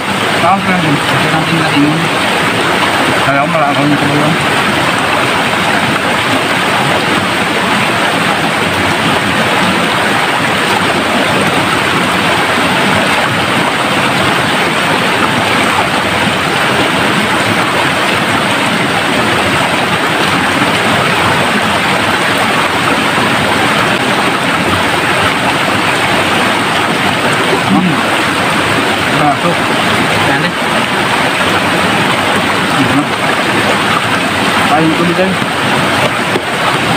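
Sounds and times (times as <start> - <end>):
stream rushing over boulders: 0.0 - 36.9.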